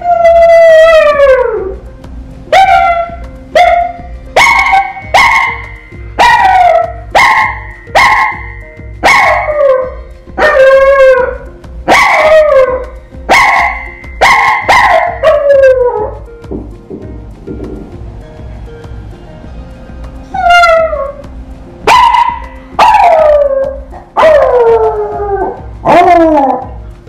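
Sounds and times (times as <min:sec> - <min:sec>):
background music with steady beat: 0:00.0 - 0:27.0
dog barking: 0:02.6 - 0:05.6, 0:06.2 - 0:09.5, 0:11.9 - 0:12.4, 0:13.3 - 0:15.4, 0:21.9 - 0:23.2.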